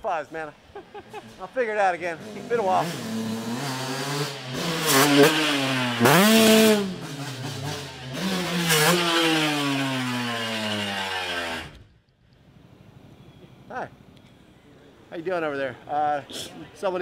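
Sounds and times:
two-stroke engine revving: 2.0 - 11.8.

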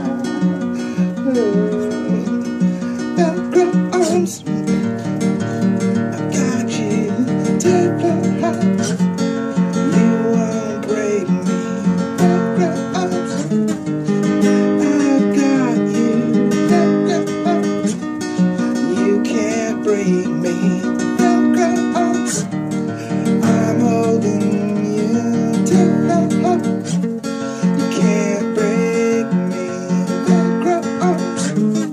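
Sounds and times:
acoustic guitar strumming: 0.0 - 31.9.

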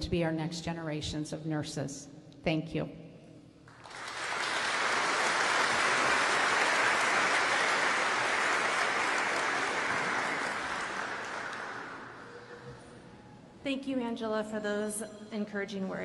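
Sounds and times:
audience applauding: 3.7 - 12.5.

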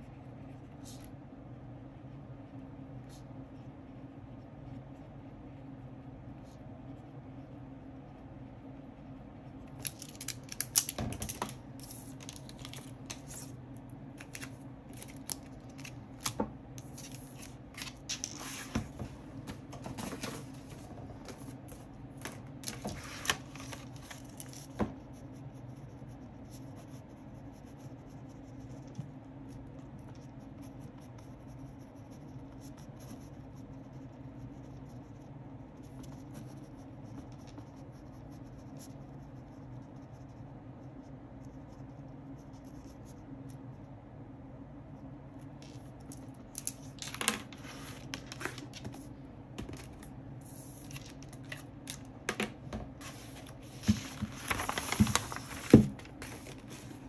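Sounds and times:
steady low hum: 0.0 - 57.0
pen scratching on paper: 24.9 - 43.2.

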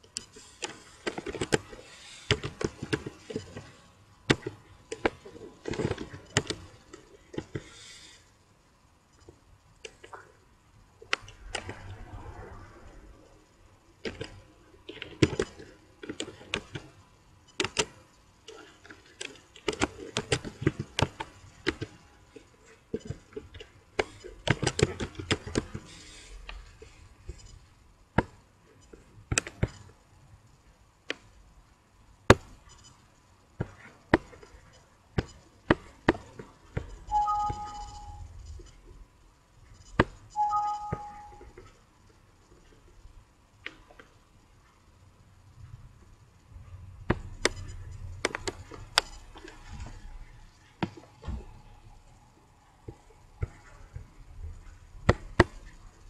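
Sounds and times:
keyboard and mouse clicking: 17.6 - 18.0, 36.1 - 38.2
two-note alert chime: 37.1 - 38.1, 40.4 - 41.4.

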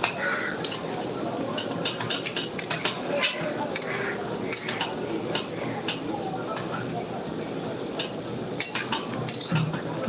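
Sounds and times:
metal utensils clinking on pot: 0.0 - 6.1, 8.0 - 9.8.

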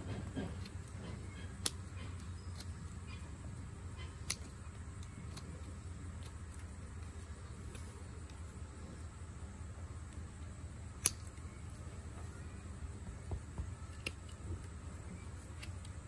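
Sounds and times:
low steady hum: 0.0 - 16.0.

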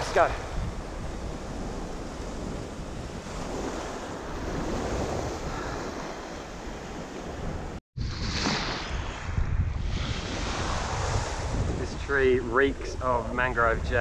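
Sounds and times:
wind buffeting microphone: 0.0 - 14.0
small waves washing over sand: 0.9 - 9.2.

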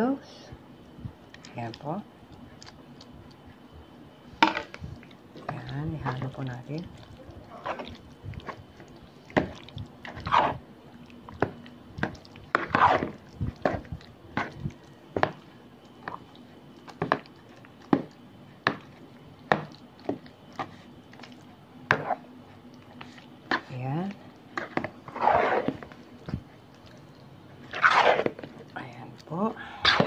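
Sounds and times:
wet squelches of stirring: 0.6 - 30.0
spoon scraping plastic bowl: 10.1 - 10.6, 12.6 - 13.8, 24.6 - 26.0, 27.6 - 28.5.

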